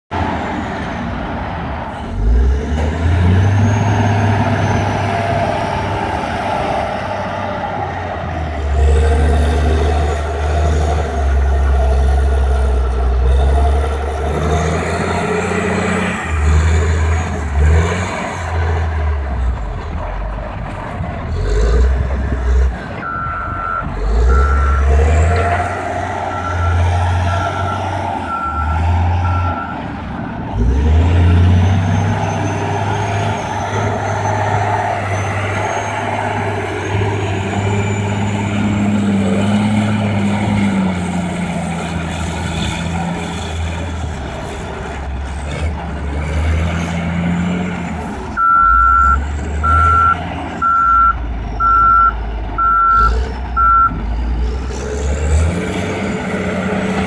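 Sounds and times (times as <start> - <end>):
diesel engine revving: 0.1 - 57.0
reverse alarm beeping: 23.0 - 24.9, 48.4 - 54.0.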